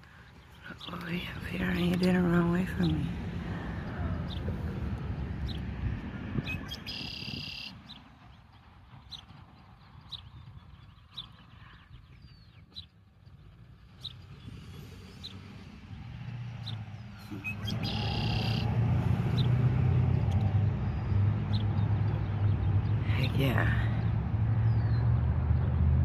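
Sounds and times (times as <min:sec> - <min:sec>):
low traffic rumble: 0:00.0 - 0:26.0
bird chirping: 0:06.4 - 0:15.7, 0:16.4 - 0:25.8.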